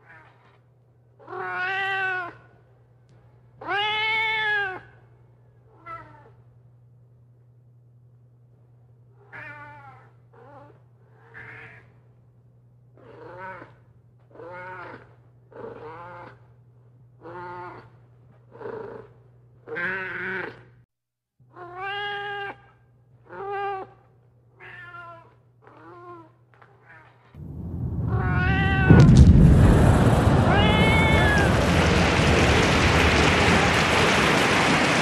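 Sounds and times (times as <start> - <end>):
cat meowing: 1.3 - 2.4, 21.6 - 22.6, 24.6 - 25.3, 28.1 - 28.9, 30.5 - 31.1
steady low hum: 27.4 - 33.5.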